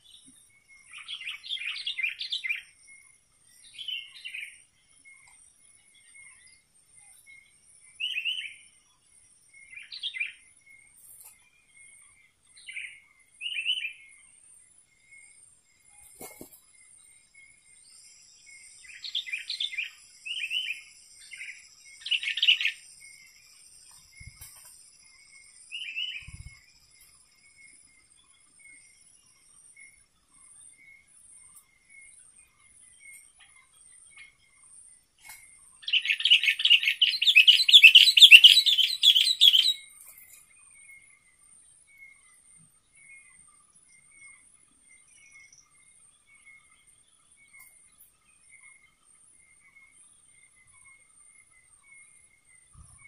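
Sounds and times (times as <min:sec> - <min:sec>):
bird chattering song: 0:00.0 - 0:08.8, 0:09.6 - 0:14.3, 0:18.0 - 0:27.2, 0:30.8 - 0:41.4
faint high insect chirps: 0:00.0 - 0:53.0
bird singing chirpy notes: 0:17.9 - 0:24.7, 0:35.7 - 0:41.1.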